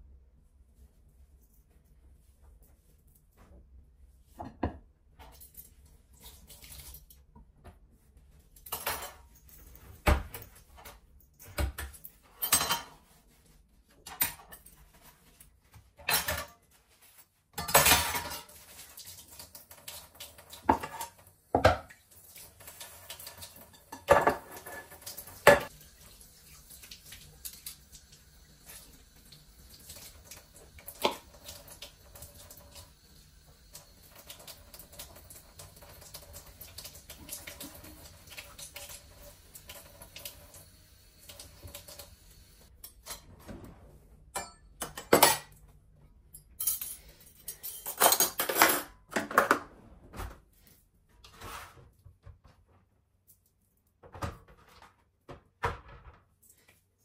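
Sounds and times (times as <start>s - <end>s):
metal utensils clattering: 16.0s - 16.6s, 17.6s - 18.6s, 44.4s - 45.6s, 46.6s - 49.6s.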